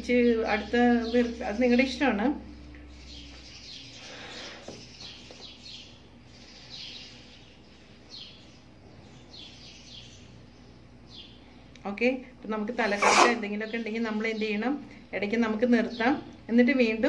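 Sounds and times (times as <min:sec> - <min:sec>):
small bird chirping: 0:02.6 - 0:11.8
breath blown into balloon: 0:12.9 - 0:13.4.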